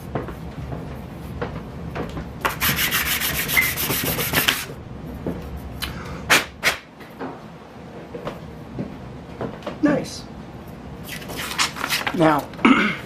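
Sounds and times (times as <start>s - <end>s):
plastic rubbed on sandpaper: 2.5s - 4.7s.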